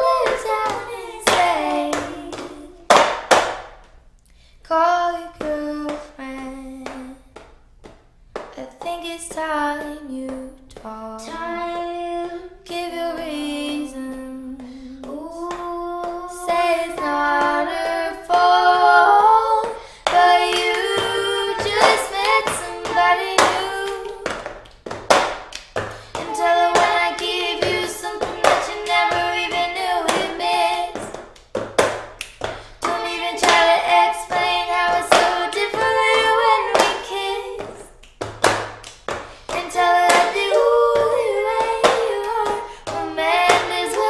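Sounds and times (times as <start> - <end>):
hand claps beat: 0.0 - 4.0, 16.9 - 44.0.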